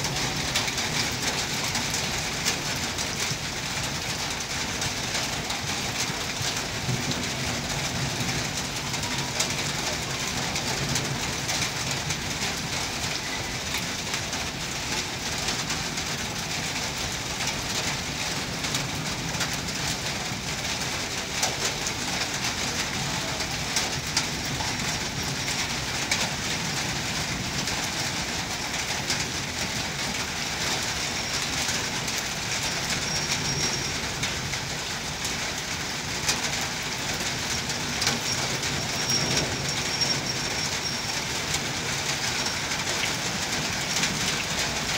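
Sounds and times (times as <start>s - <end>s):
rain: 0.0s - 44.9s
train coaches rolling on rails: 0.0s - 44.9s
high squeaks: 32.8s - 34.0s, 38.2s - 41.6s.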